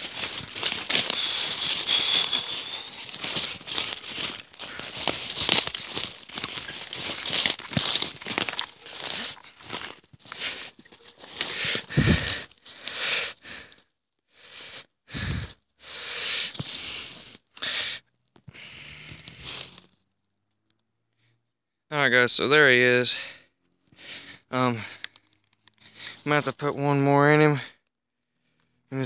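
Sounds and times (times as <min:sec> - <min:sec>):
footsteps crunching through dry leaves: 0:00.0 - 0:12.9, 0:19.1 - 0:19.9.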